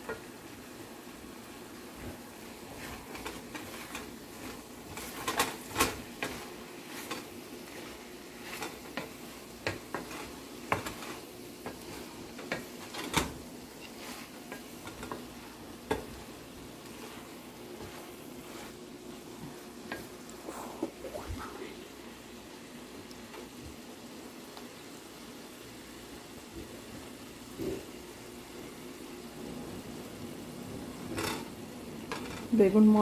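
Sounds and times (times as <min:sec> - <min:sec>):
food sizzling: 0:00.0 - 0:33.0
wooden spatula scraping pan: 0:01.8 - 0:21.5
spatula knocking against pan: 0:08.6 - 0:13.3.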